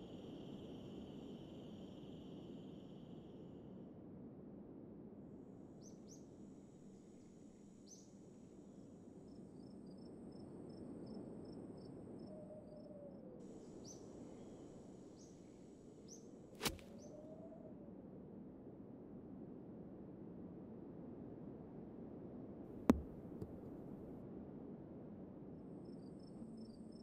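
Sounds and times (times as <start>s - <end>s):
high insect trill: 0.0s - 3.7s
sharp click: 16.6s - 16.9s.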